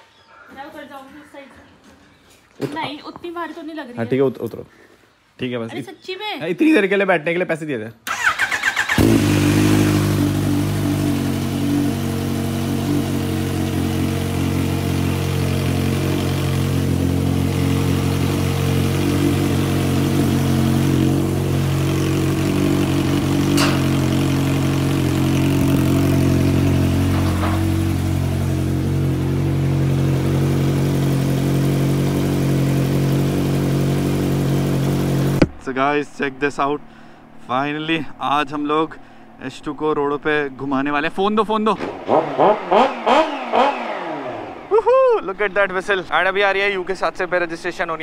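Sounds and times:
motorcycle engine idling: 0:08.1 - 0:35.6.

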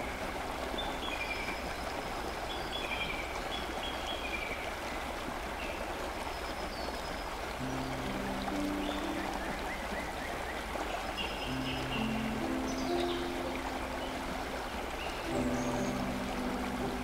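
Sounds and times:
river rushing over rocks: 0:00.0 - 0:17.0
low background music: 0:07.6 - 0:17.0.

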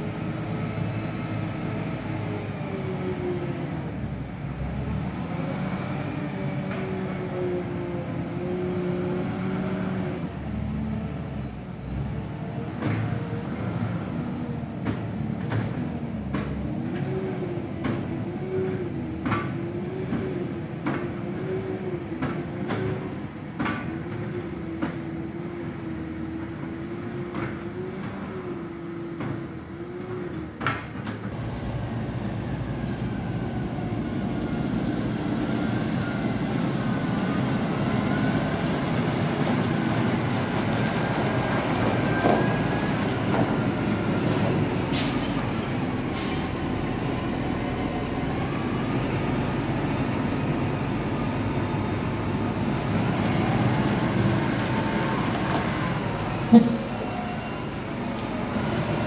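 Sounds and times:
tractor diesel engine running: 0:31.2 - 0:59.0.

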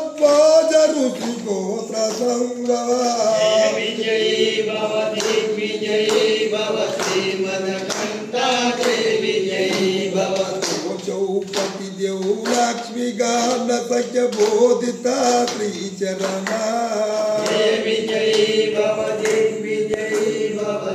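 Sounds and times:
man chanting: 0:00.0 - 0:04.4, 0:10.1 - 0:18.0.

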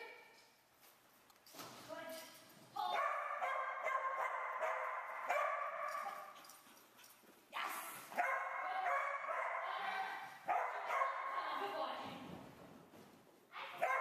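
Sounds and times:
small dog barking and yipping: 0:02.9 - 0:06.5, 0:08.1 - 0:11.4, 0:13.7 - 0:14.0.

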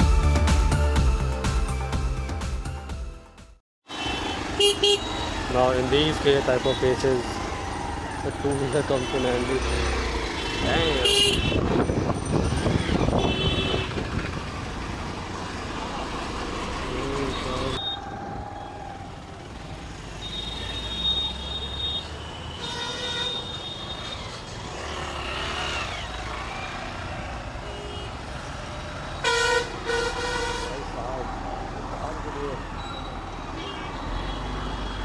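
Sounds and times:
traffic engines rumbling: 0:03.8 - 0:35.0
vehicle horns tooting: 0:03.9 - 0:07.4, 0:08.6 - 0:14.1, 0:17.1 - 0:18.7, 0:20.1 - 0:25.0, 0:27.6 - 0:28.4, 0:29.1 - 0:31.0, 0:32.8 - 0:35.0.

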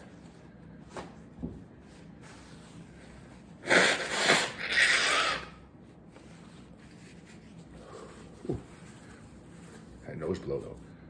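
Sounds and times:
man blowing nose: 0:03.6 - 0:05.6.

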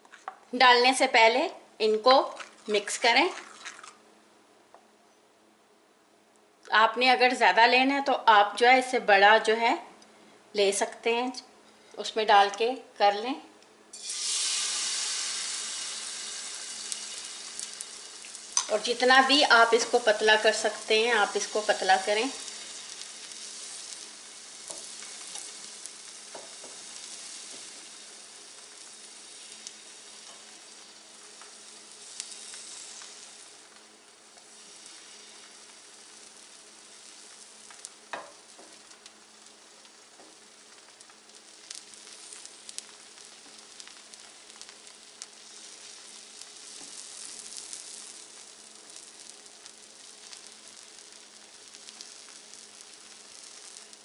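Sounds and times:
batter sizzling on hot pan: 0:01.9 - 0:04.0, 0:13.9 - 0:54.0.

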